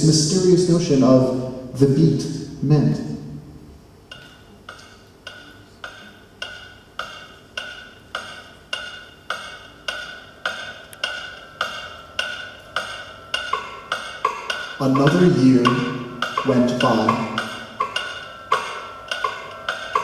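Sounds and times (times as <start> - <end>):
wood block struck: 4.1 - 20.0.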